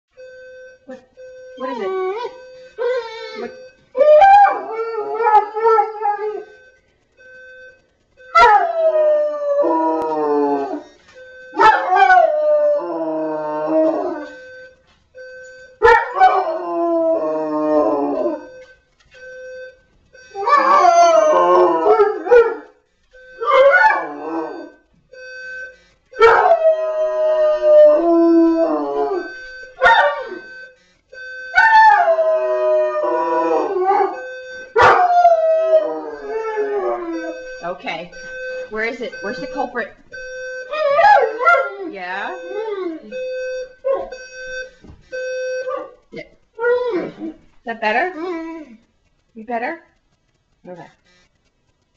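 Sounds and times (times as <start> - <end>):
alarm clock beeping: 0.1 - 45.9
dog howling: 1.6 - 6.5, 8.4 - 10.9, 11.6 - 14.4, 20.4 - 22.6, 23.4 - 24.8, 26.2 - 30.4, 31.6 - 34.2, 34.8 - 37.4, 40.7 - 43.2, 46.6 - 47.4.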